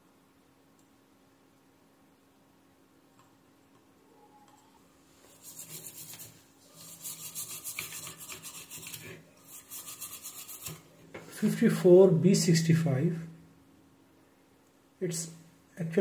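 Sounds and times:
bristle brush scrubbing circuit board: 5.2 - 10.9.

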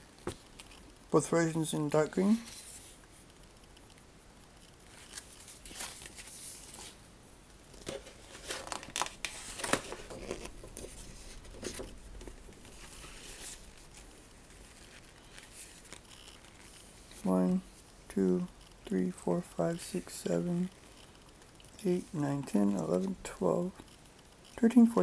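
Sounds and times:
paper pages rustling: 2.2 - 3.0, 4.9 - 7.0, 7.7 - 17.3.

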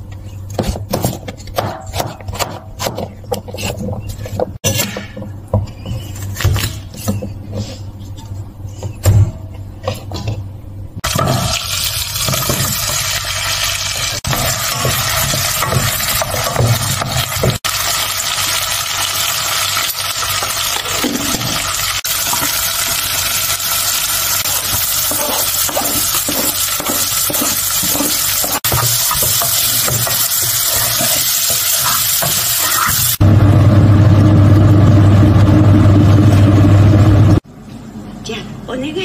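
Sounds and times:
wooden spoon scraping a pot: 2.2 - 4.8, 24.5 - 33.2
vegetables sizzling in butter: 11.0 - 33.2.

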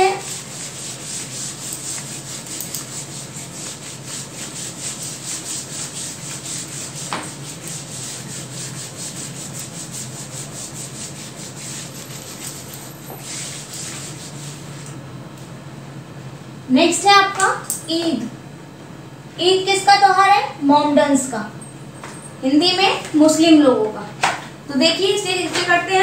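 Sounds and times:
duster scrubbing whiteboard: 0.0 - 15.0.

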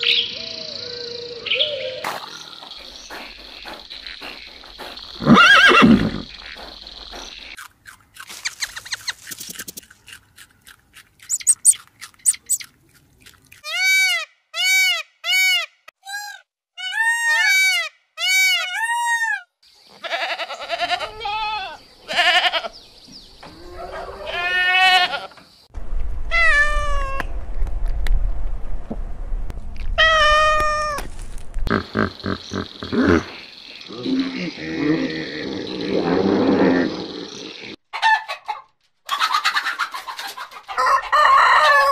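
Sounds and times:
rabbits chewing corn: 6.3 - 13.9
goats bleating: 20.0 - 22.7, 24.2 - 25.4
cat meowing: 26.3 - 27.2.

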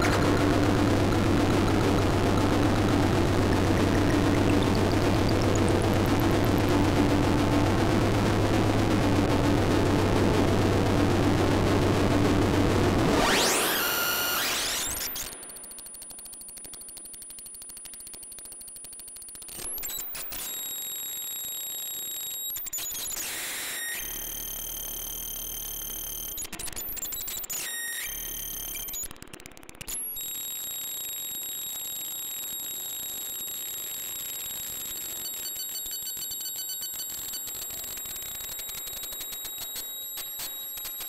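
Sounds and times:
shrill electronic tones: 0.0 - 7.0, 13.2 - 15.3
fast stuttering electronic pulse: 0.0 - 15.6.

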